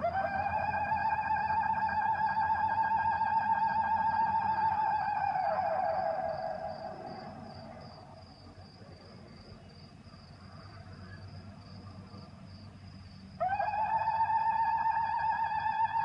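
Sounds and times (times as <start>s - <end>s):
wavering high tone: 0.0s - 7.8s, 13.4s - 16.0s
crickets chirping: 0.0s - 16.0s.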